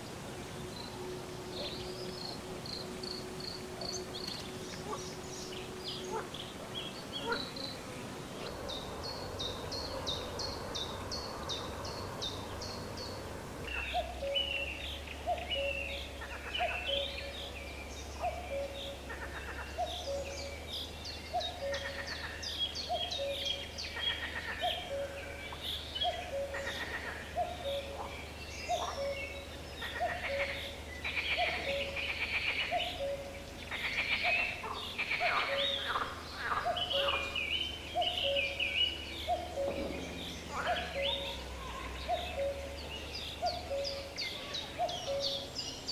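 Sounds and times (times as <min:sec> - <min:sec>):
birds chirping and singing: 0:00.0 - 0:45.9
low bird call: 0:21.3 - 0:45.9.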